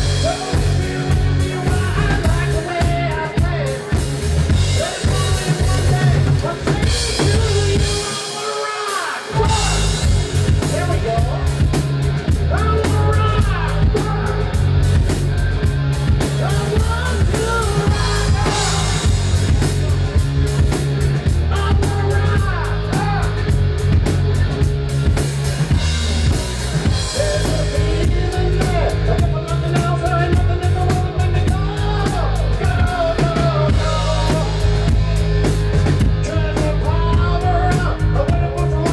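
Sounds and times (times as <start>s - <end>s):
man singing into a microphone: 0.0s - 11.5s, 12.5s - 14.6s, 16.4s - 19.2s, 21.5s - 23.4s, 27.0s - 35.2s, 36.2s - 38.9s
bass guitar: 0.0s - 38.9s
distorted electric guitar: 0.0s - 38.9s
drum kit: 0.0s - 38.9s.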